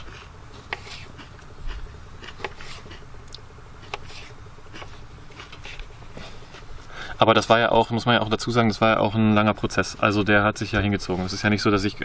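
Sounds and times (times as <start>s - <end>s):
knife slicing tomatoes: 0.0s - 3.0s, 3.8s - 6.4s.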